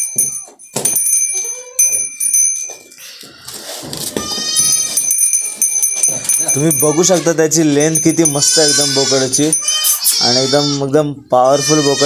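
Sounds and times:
high bell-like ringing: 0:00.0 - 0:03.3, 0:04.2 - 0:10.8
goat calls: 0:03.0 - 0:05.0, 0:06.2 - 0:12.0.

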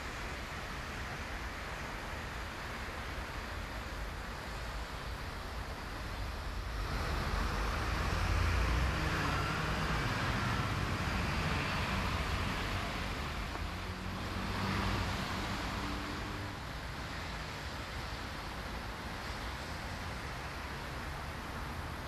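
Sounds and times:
vehicle passing: 0:06.7 - 0:16.6.

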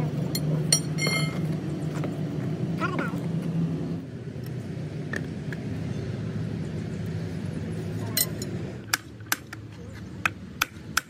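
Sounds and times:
sharp metallic clink: 0:00.3 - 0:01.4.

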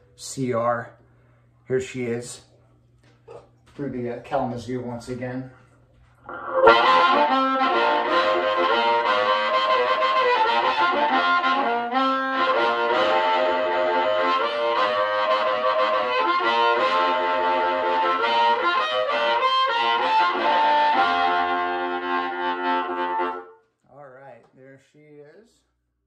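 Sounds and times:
amplified blues harmonica: 0:06.2 - 0:23.6.

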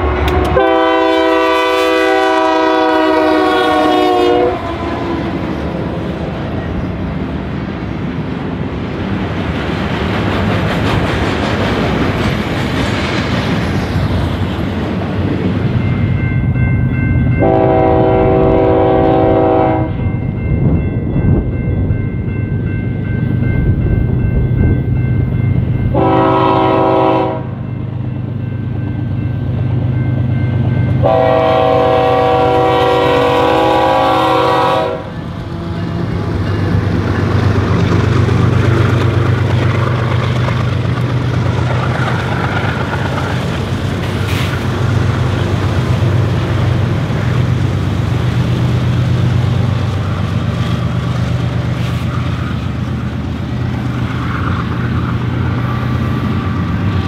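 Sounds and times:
locomotive air horn: 0:00.0 - 0:05.5, 0:17.4 - 0:20.0, 0:25.9 - 0:27.6, 0:31.0 - 0:36.1
diesel engines and train running: 0:00.0 - 0:57.0.

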